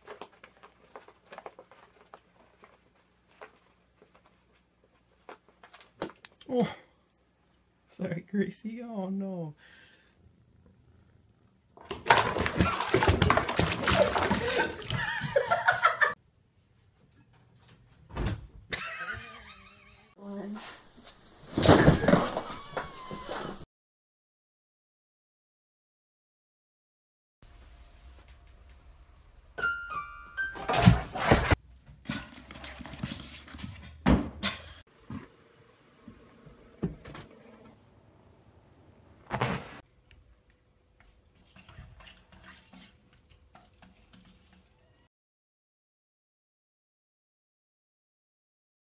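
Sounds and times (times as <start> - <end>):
water splashing in a bath: 11.8 - 16.2, 41.0 - 45.1
person laughing: 14.0 - 16.2, 18.7 - 20.1.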